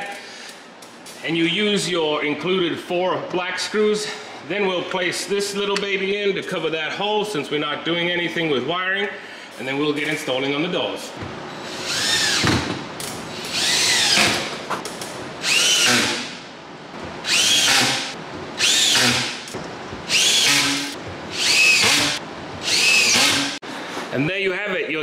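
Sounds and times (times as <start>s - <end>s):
cordless drill driving screws: 11.6s - 12.6s, 13.4s - 14.5s, 15.4s - 16.3s, 17.2s - 19.5s, 20.1s - 23.6s.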